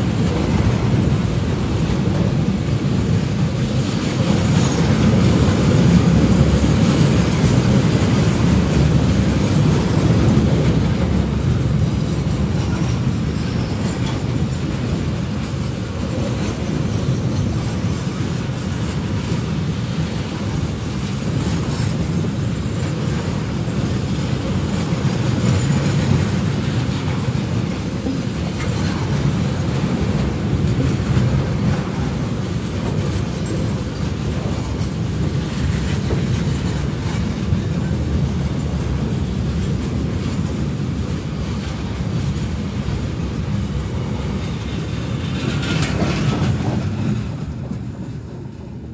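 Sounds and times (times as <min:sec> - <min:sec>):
train wheels rumbling on rails: 0:00.0 - 0:48.9
wheels clickety-clack: 0:00.0 - 0:48.9.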